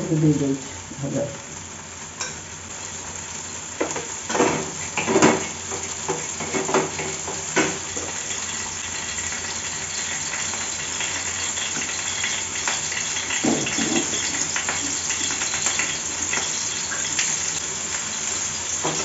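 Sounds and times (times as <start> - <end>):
oil frying sizzle: 0.0 - 19.0.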